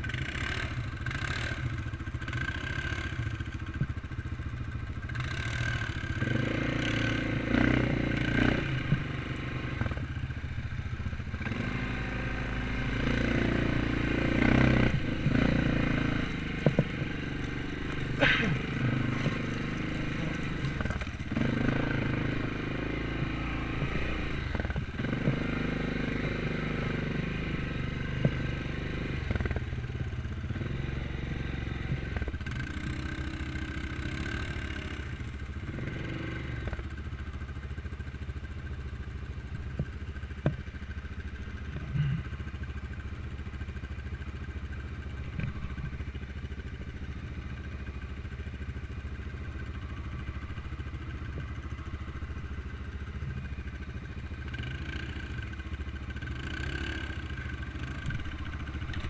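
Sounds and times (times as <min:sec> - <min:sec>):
quad bike engines running: 0:00.0 - 0:59.0
knocks and clatter over bumps: 0:03.5 - 0:04.2, 0:05.1 - 0:10.2, 0:13.0 - 0:26.4, 0:28.0 - 0:29.7, 0:39.4 - 0:43.0, 0:44.3 - 0:47.6, 0:48.2 - 0:59.0.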